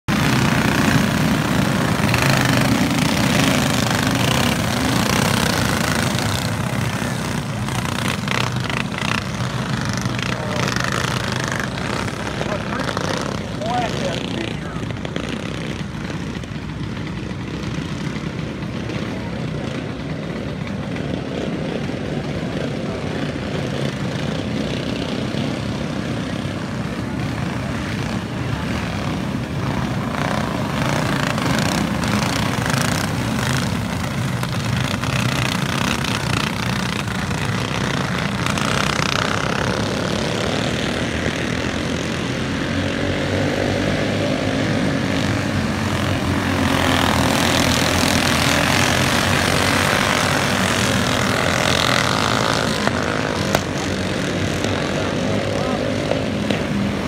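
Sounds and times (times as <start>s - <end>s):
go-kart engines running: 0.0s - 57.0s.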